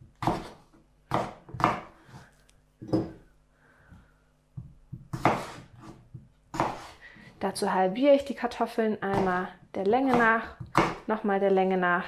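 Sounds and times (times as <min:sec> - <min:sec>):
knife cutting raw potato: 0:00.1 - 0:03.1, 0:04.6 - 0:07.4.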